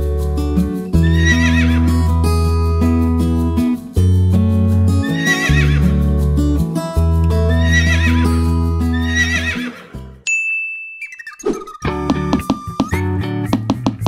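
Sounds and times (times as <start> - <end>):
background music with bass line: 0.0 - 10.2, 11.8 - 14.0
horse whinnying: 1.0 - 1.9, 5.1 - 5.8, 7.5 - 8.3, 8.9 - 10.0.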